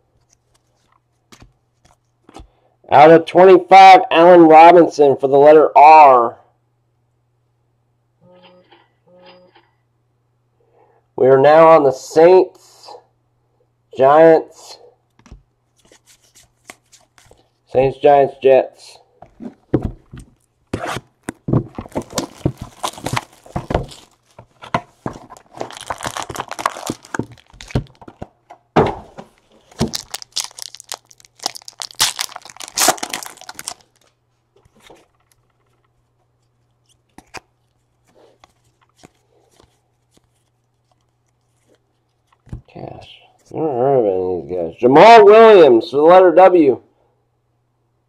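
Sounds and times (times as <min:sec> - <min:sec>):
packaging ripping and rustling: 0:20.4 - 0:28.2, 0:29.3 - 0:35.4.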